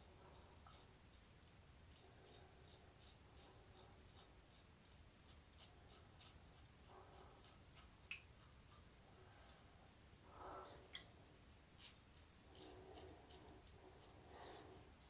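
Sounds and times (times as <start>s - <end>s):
razor scraping stubble: 0.6s - 8.8s, 11.8s - 15.0s.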